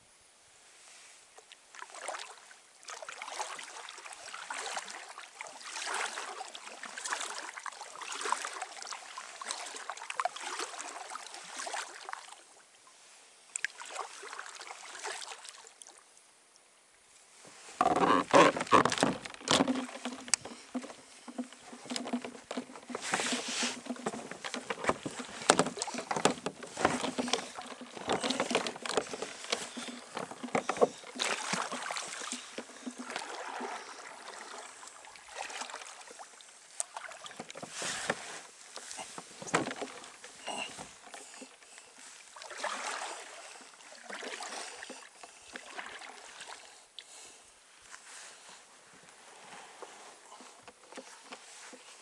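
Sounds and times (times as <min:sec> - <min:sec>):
paddle splashing in water: 0:01.7 - 0:12.6, 0:13.6 - 0:15.9, 0:17.4 - 0:47.4, 0:49.3 - 0:52.0
boat knocks and rustles: 0:17.4 - 0:36.2, 0:36.8 - 0:46.6, 0:47.9 - 0:52.0.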